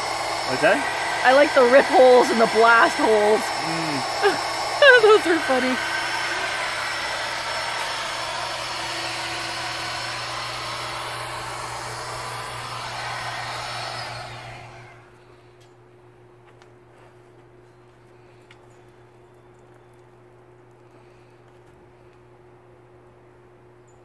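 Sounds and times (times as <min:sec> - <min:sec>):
electric air pump whirring: 0:00.0 - 0:15.5.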